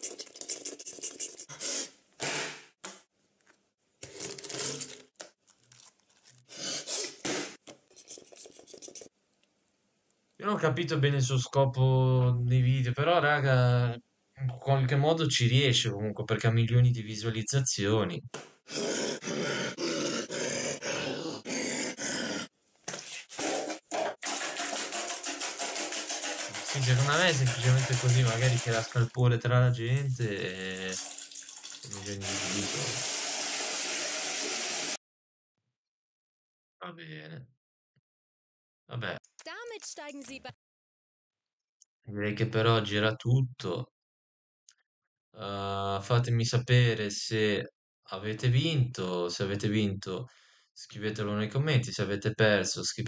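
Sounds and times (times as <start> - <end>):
raw meat squishing and tearing: 5.2 - 6.5
harsh rhythmic grunting: 18.7 - 22.5.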